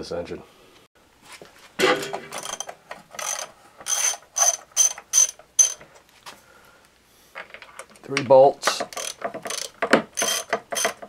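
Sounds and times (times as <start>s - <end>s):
ratchet wrench clicking: 2.4s - 5.8s, 8.9s - 11.0s.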